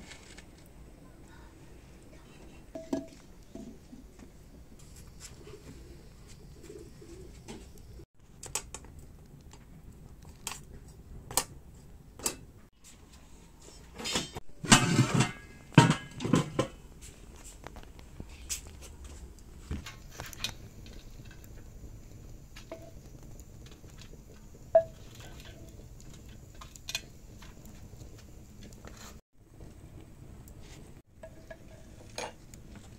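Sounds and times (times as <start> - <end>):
cooking utensils clinking and knocking: 2.7 - 3.9, 14.0 - 16.8, 22.6 - 28.8, 31.2 - 32.9.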